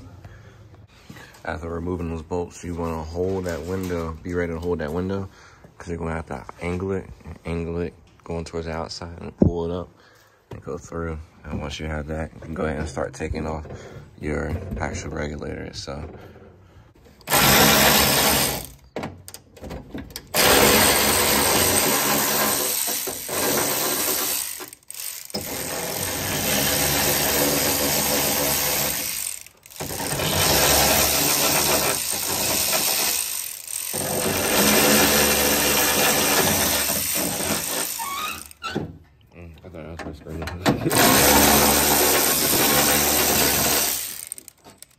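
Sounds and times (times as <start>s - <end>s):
power ratchet running: 17.2s - 18.8s, 20.2s - 38.6s, 40.9s - 44.9s.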